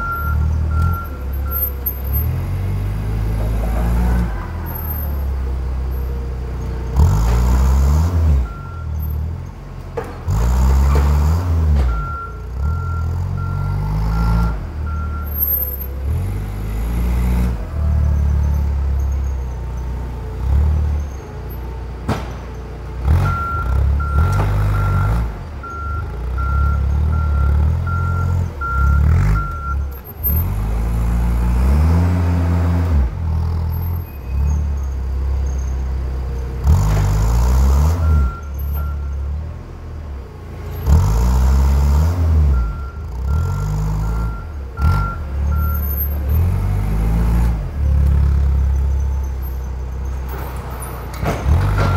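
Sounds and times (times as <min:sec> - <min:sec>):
reversing alarm beeping: 0:00.0 - 0:02.3, 0:08.4 - 0:09.2, 0:11.9 - 0:15.9, 0:23.2 - 0:30.4, 0:38.0 - 0:39.3, 0:42.4 - 0:46.3
forklift engine revving: 0:00.0 - 0:51.9.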